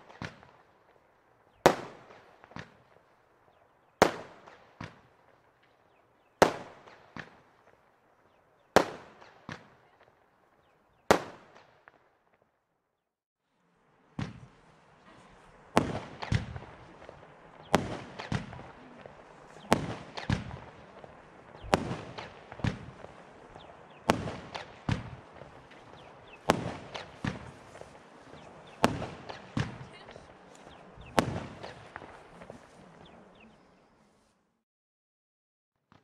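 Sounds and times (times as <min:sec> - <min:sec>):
firework launch reports: 0:14.1 - 0:33.9.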